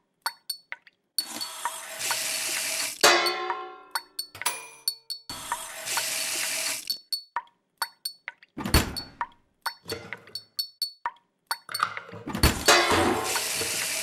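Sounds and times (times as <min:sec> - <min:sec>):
sharp metallic clinks: 0:04.0 - 0:05.3, 0:08.9 - 0:11.9.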